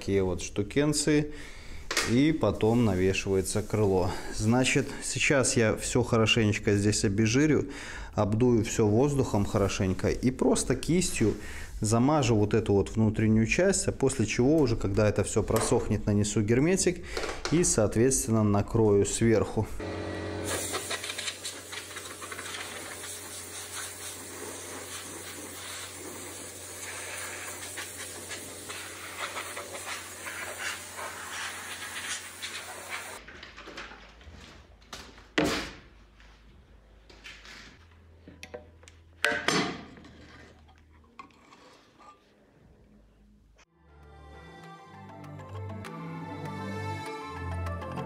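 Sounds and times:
compressed air blow gun hissing: 20.4 - 33.2
loud air blasts: 20.4 - 33.2.

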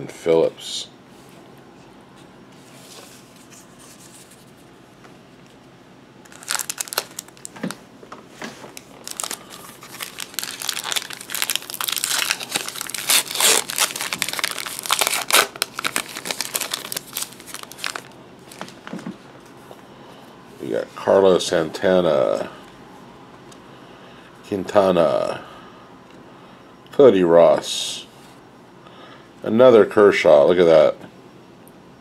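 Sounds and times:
wrapper crinkling as torn open: 6.2 - 7.8, 8.7 - 18.8.

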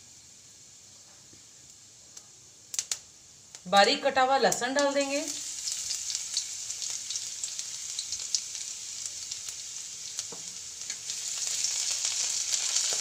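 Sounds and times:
garlic sizzling in hot oil: 0.0 - 13.0.

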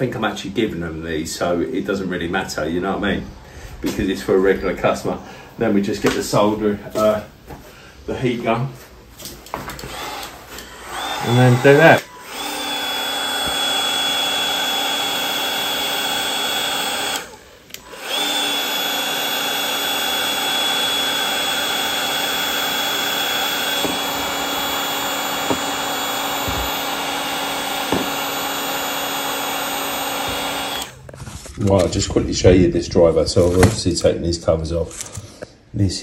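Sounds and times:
heat gun fan whirring: 9.1 - 32.0.

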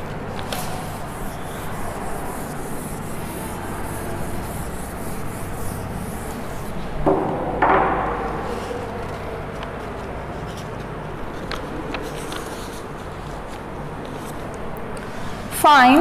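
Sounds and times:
pen scratching on paper: 0.0 - 6.8.

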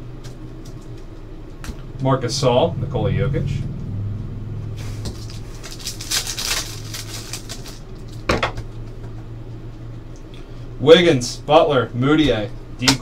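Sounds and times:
low steady hum: 0.0 - 13.0
cards flipping and rustling: 5.1 - 8.2.

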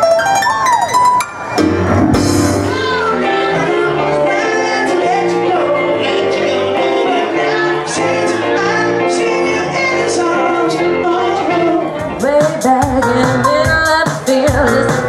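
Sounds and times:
song with driving drum beat: 1.6 - 3.8, 12.0 - 15.0
pop music with singing: 2.4 - 15.0.

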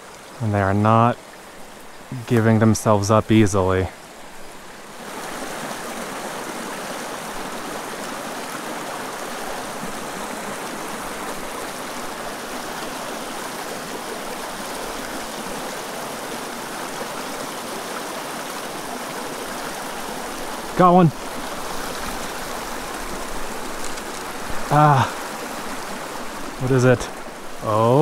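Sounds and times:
creek water rushing over rocks: 0.0 - 28.0.

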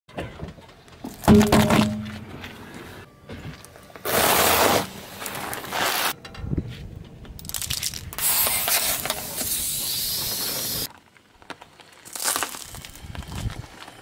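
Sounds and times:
tyre crunching candies: 10.9 - 14.0.

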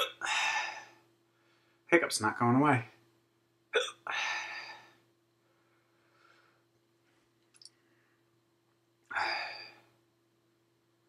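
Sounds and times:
man hiccuping: 0.0 - 0.2, 3.8 - 4.1
faint clicks: 7.4 - 7.8.

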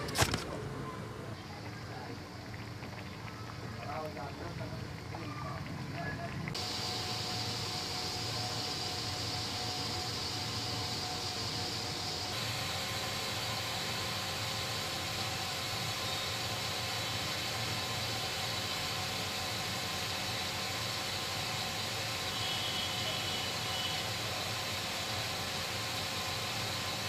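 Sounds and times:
steady hiss: 6.5 - 27.0.

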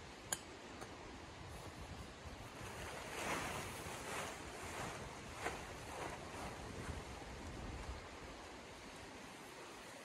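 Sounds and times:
tent fabric rustling: 2.4 - 8.4
fabric swishes: 2.6 - 7.1.

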